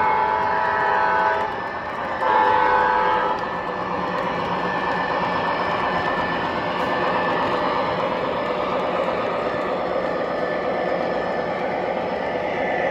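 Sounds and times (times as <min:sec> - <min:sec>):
model train horn blasts: 0:00.0 - 0:01.5, 0:02.2 - 0:03.4
model train running: 0:00.0 - 0:12.9.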